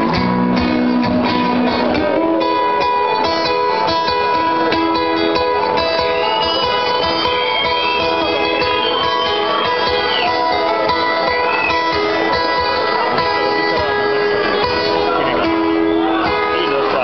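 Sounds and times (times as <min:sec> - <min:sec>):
guitar strummed in chords: 0:00.0 - 0:17.0.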